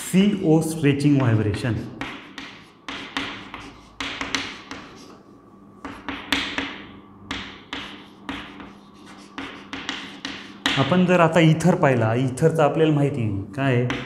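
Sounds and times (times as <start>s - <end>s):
chalk tapping on chalkboard: 2.0s - 5.2s, 5.8s - 11.1s
chalk scratching: 2.0s - 10.9s.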